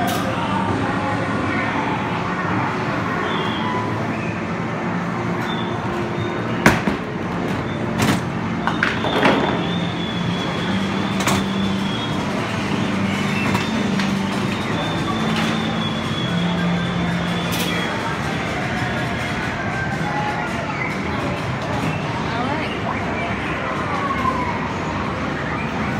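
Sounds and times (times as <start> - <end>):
balls clunking through return: 5.4 - 9.9.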